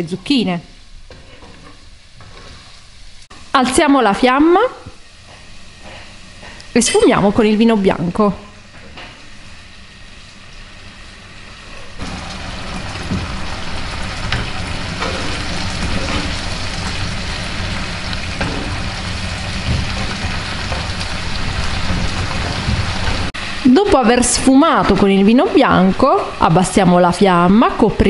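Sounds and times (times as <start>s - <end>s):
food sizzling in a frying pan: 0.0s - 28.0s
wooden spatula scraping a pan: 1.0s - 2.9s.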